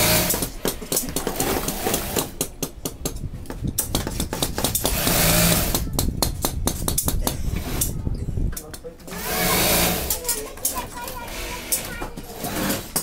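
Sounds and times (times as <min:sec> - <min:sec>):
industrial sewing machines running: 0:00.0 - 0:00.3, 0:05.0 - 0:05.7, 0:09.1 - 0:10.2, 0:12.4 - 0:13.0.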